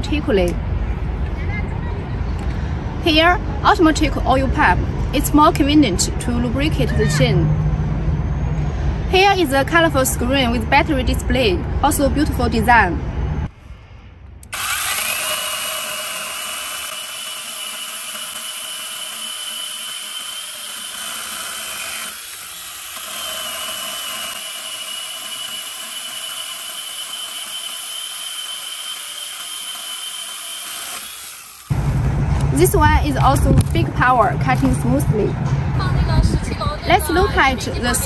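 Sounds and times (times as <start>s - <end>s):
electric chainsaw cutting wood: 14.5s - 31.9s.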